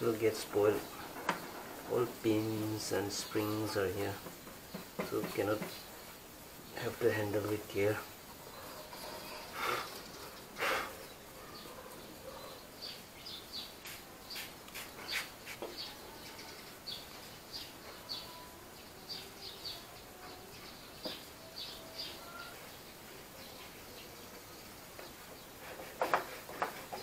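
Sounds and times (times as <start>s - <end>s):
brush scrubbing metal: 25.4s - 27.0s.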